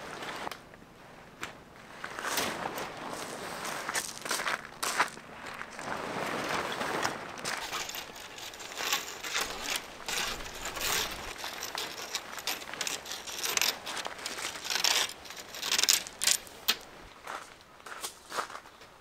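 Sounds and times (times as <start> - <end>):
gear rustling and crinkling: 1.9 - 18.8.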